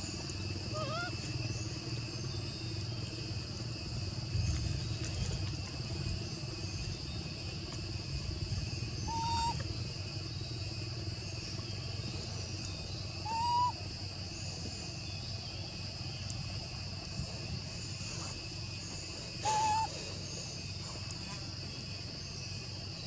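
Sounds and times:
clear pitched calls: 0.0s - 2.8s, 8.6s - 10.0s, 12.2s - 14.0s, 18.8s - 21.3s
high insect drone: 0.0s - 23.0s.

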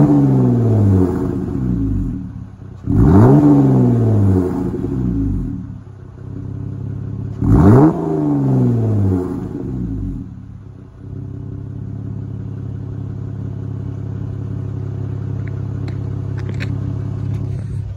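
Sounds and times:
car engine revving and idling: 0.0s - 17.9s.

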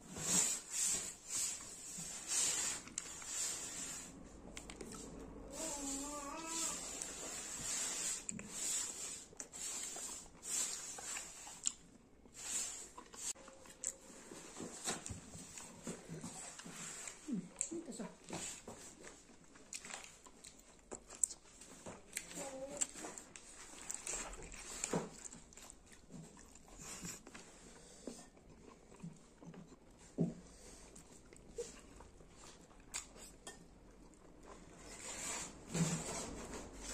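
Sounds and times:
chewing and wet mouth sounds: 8.3s - 14.4s, 15.0s - 34.9s.

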